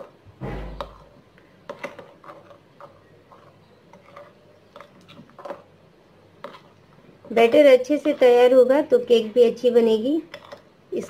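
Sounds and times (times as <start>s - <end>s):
spoon scraping glass bowl: 1.7s - 5.6s, 10.2s - 10.7s.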